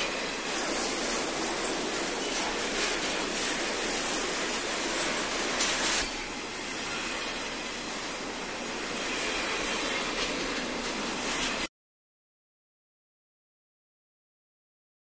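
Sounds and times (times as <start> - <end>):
film soundtrack hiss: 0.0 - 11.7.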